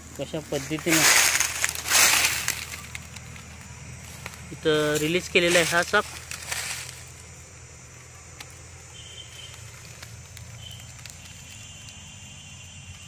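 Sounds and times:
insects chirping: 0.0s - 13.0s
faint dry ticks: 8.0s - 13.0s.

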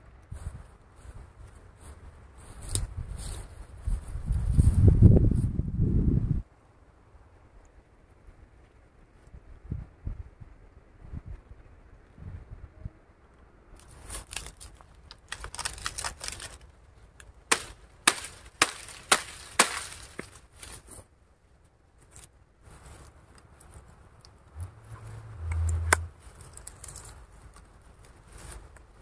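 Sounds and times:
rustling: 13.8s - 29.0s.

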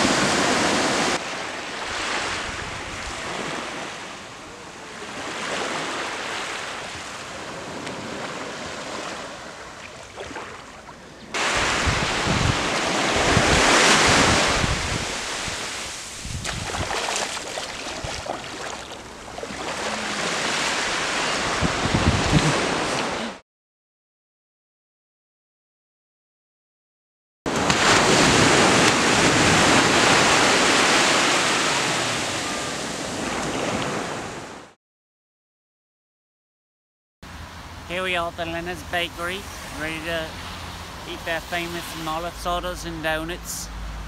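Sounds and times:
surf washing onto beach: 0.0s - 23.3s, 27.5s - 34.6s, 38.0s - 43.6s
wind gusting on microphone: 1.8s - 3.7s, 10.2s - 23.3s, 27.6s - 34.6s.

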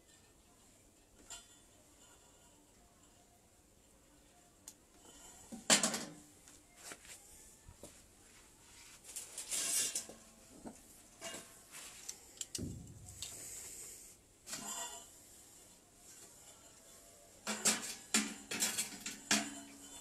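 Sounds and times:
rustling handling noises: 6.4s - 13.8s.

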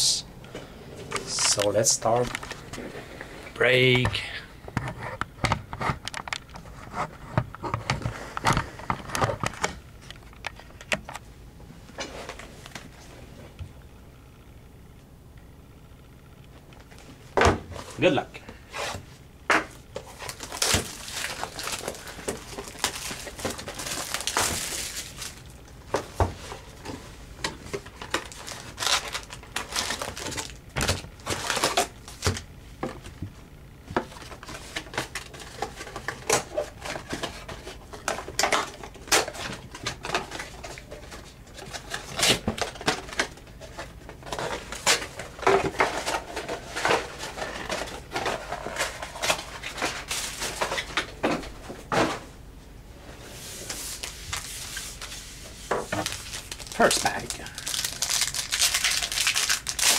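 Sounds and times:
foil packs crinkling: 1.3s - 2.8s, 19.7s - 32.5s, 34.0s - 51.1s, 53.6s - 59.9s
cardboard tearing: 55.9s - 59.9s.

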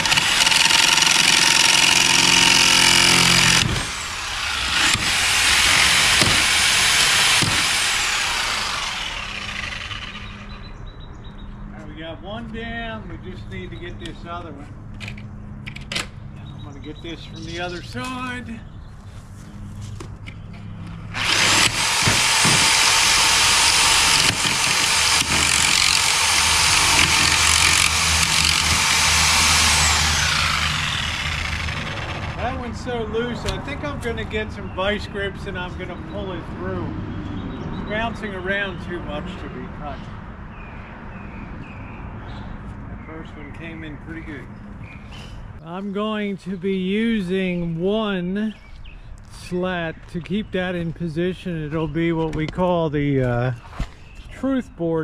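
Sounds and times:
reciprocating saw cutting: 0.0s - 10.6s, 21.1s - 32.8s.

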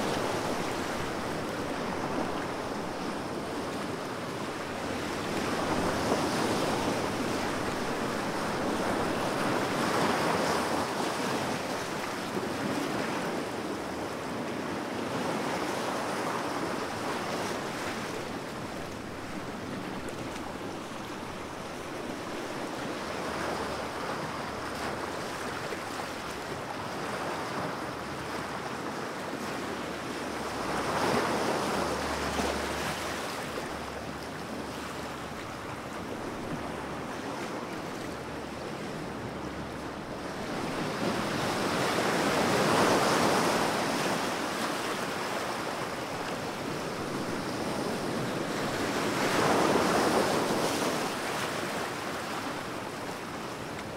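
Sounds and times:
waves washing: 0.0s - 53.9s.

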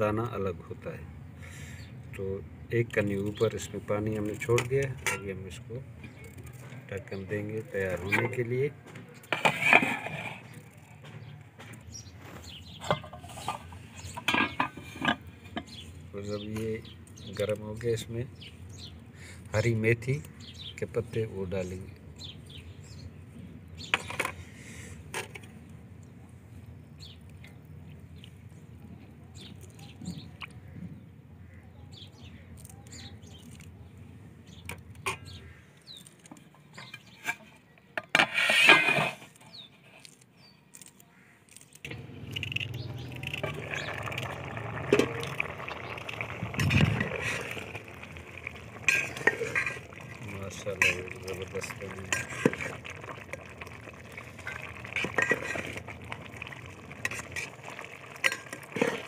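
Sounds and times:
utensil scraping metal pot: 7.8s - 8.5s, 9.2s - 10.9s, 12.7s - 16.6s, 36.6s - 39.9s, 41.8s - 59.0s
liquid washing in pot: 41.9s - 59.0s.

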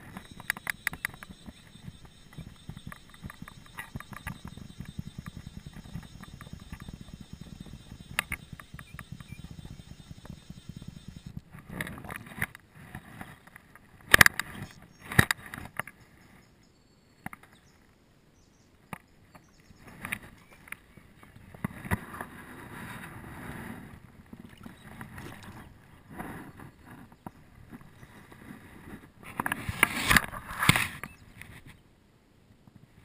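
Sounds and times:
fishing reel clicking: 0.0s - 11.3s.

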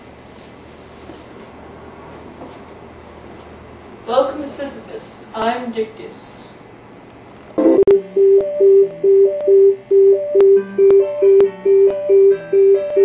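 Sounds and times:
repeated synth note melody: 7.6s - 13.0s.

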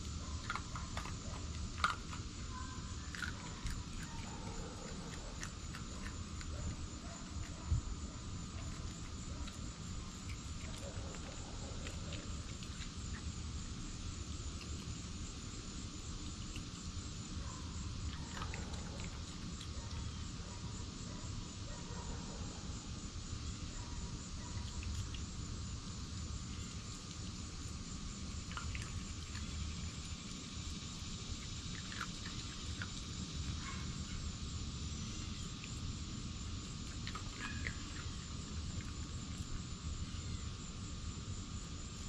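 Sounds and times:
animal eating from glass bowls: 0.0s - 13.3s, 18.1s - 20.2s, 36.9s - 39.6s
crickets chirping: 0.0s - 42.0s.

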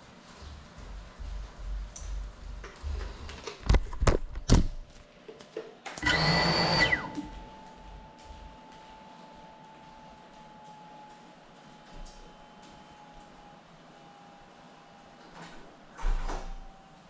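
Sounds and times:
drone motors whining: 6.0s - 8.0s.

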